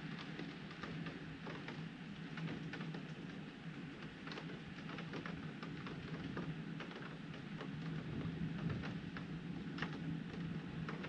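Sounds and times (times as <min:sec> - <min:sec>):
rain pattering on window glass: 0:00.0 - 0:11.0.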